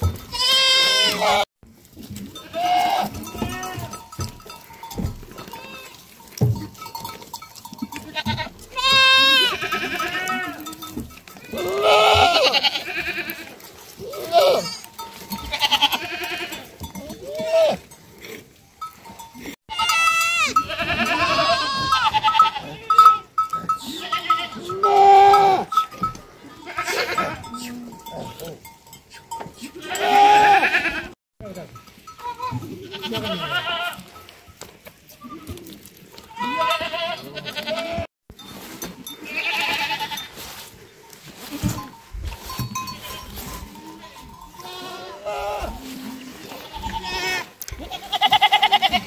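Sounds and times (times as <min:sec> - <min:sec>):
goats bleating: 0:00.0 - 0:18.0, 0:19.4 - 0:31.2, 0:32.1 - 0:34.3, 0:35.1 - 0:38.1, 0:39.0 - 0:40.5, 0:41.4 - 0:49.0
bell clinking: 0:03.1 - 0:08.2, 0:41.8 - 0:44.7.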